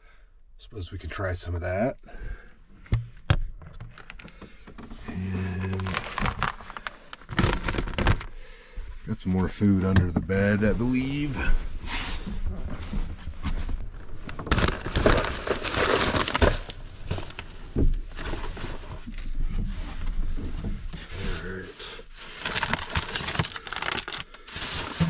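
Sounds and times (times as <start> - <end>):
items knocking: 2.9 - 8.3, 22.4 - 25.0
plastic bags rustling: 4.0 - 8.4, 13.7 - 25.0.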